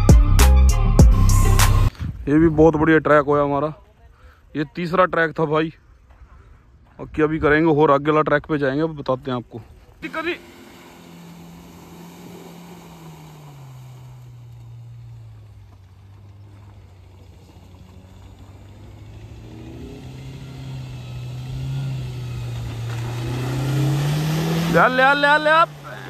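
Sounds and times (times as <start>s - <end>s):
off-road vehicle engine running: 9.6s - 26.0s.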